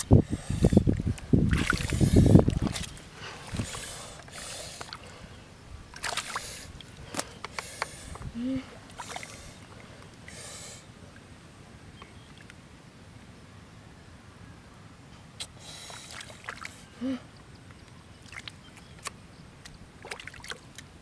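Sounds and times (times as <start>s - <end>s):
wet mud squelching: 0.0s - 5.2s, 5.9s - 10.1s, 18.2s - 20.9s
hands splashing in muddy water: 1.5s - 5.0s, 6.0s - 8.0s, 20.0s - 20.9s.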